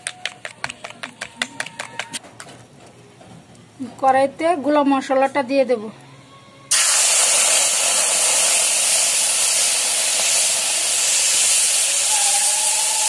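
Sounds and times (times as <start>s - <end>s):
paste sizzling in hot oil: 6.7s - 13.0s.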